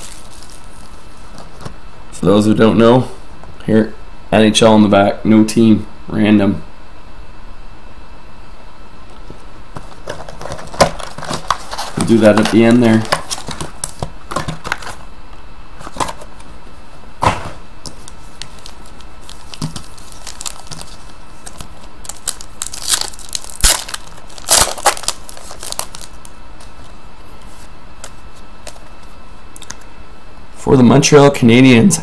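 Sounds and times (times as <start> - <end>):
foil wrapper crinkling and tearing: 0.0 - 1.7, 10.0 - 15.0, 17.9 - 27.0.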